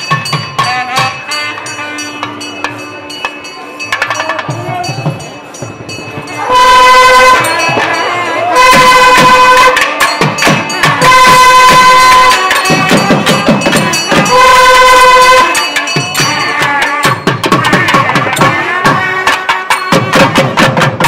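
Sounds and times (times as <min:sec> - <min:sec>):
drum strokes: 0:00.0 - 0:21.0
brass horn blasts: 0:00.6 - 0:02.9, 0:06.4 - 0:20.4.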